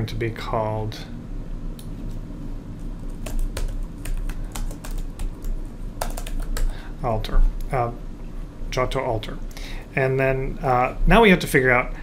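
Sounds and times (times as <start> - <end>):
computer keyboard typing: 3.0 - 6.8.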